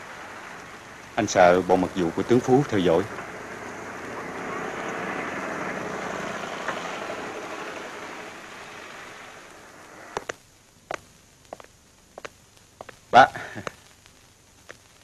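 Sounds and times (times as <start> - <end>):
car engine and road noise: 0.0 - 10.4.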